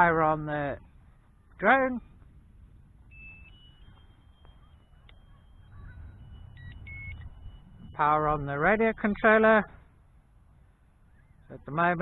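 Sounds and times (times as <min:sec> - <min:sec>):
short electronic chirps: 0:03.1 - 0:08.0
high electronic beeps: 0:03.1 - 0:09.0.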